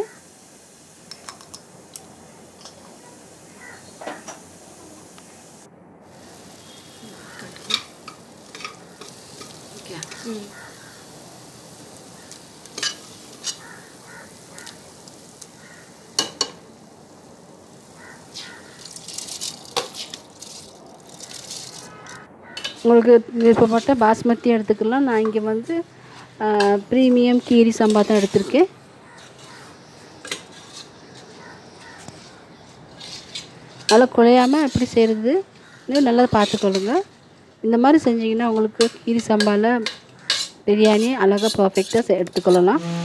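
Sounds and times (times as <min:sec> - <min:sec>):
rice pattering into a pot: 0:00.0 - 0:05.5, 0:06.2 - 0:22.9
spices sizzling in a pot: 0:00.0 - 0:43.0
spatula scraping a pot: 0:30.3 - 0:31.0, 0:40.2 - 0:43.0.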